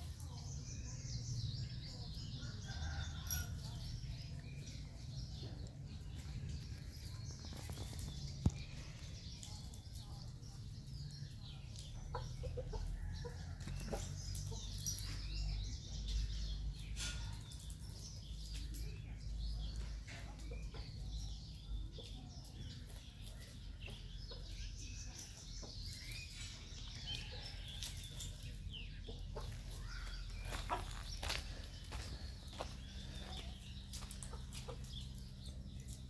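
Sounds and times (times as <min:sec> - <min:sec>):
chickens clucking: 0:11.4 - 0:16.1, 0:16.7 - 0:36.0.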